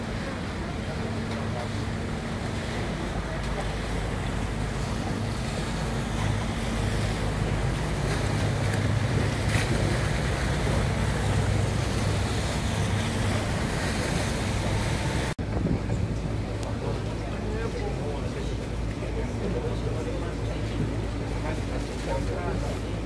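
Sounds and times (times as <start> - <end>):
boat engine droning: 0.0 - 23.0
water rushing: 0.0 - 23.0
wind on microphone: 10.7 - 16.6.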